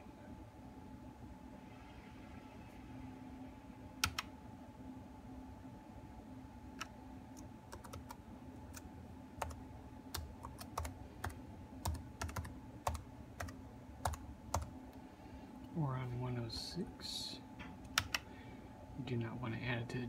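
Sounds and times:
faint steady hum: 0.0 - 20.0
laptop keyboard typing: 4.0 - 4.3, 6.8 - 14.7, 17.8 - 18.3.

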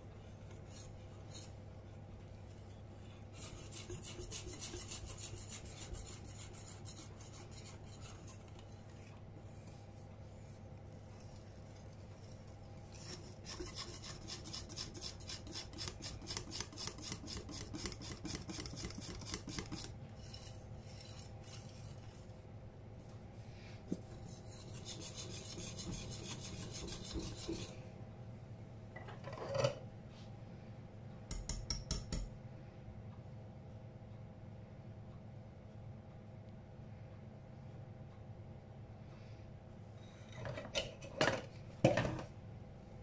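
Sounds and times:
whisk scraping glass bowl: 3.4 - 22.4, 24.2 - 27.8.

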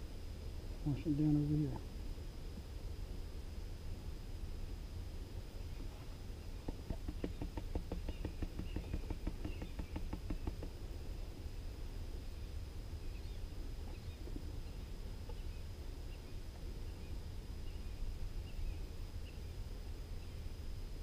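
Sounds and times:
faint bird chirps: 5.5 - 20.6.

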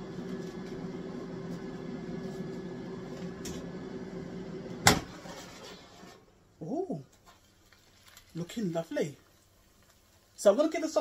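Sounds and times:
air fryer fan hum: 0.0 - 6.0.

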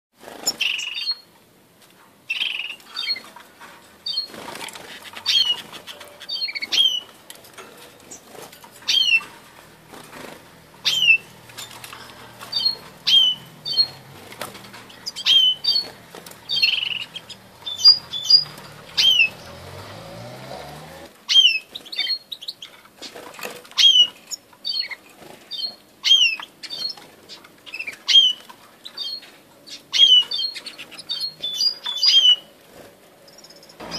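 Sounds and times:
birds calling with down-slurred notes: 0.2 - 1.4, 2.3 - 33.9
bird chips: 4.0 - 20.0
wings fluttering: 4.0 - 21.1.

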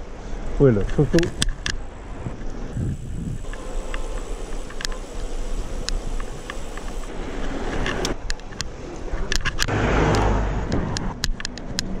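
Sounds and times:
road rumble: 0.0 - 12.0
bicycle clicks and rattles: 0.7 - 9.7, 10.9 - 12.0
wind on microphone: 2.1 - 9.4.

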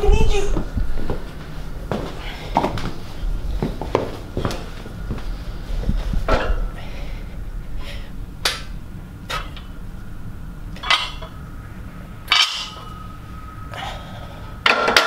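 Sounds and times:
barbell plates clanking: 10.8 - 11.4, 12.2 - 13.0, 14.6 - 15.0.

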